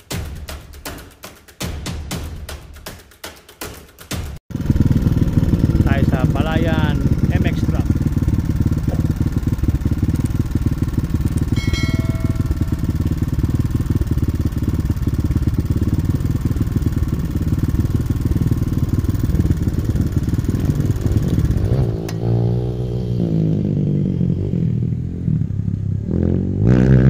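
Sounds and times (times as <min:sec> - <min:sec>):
dirt bike engine idling: 0:04.5 - 0:22.4
brief high-pitched tone: 0:11.6 - 0:13.1.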